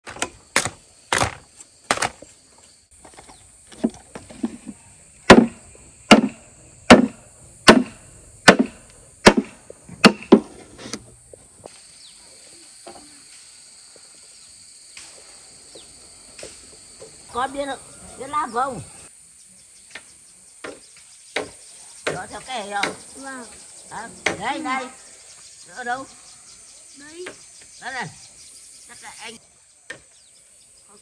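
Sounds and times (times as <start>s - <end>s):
blade chopping wood: 0.0s - 2.3s, 5.3s - 10.6s
high insect buzz: 0.0s - 31.0s.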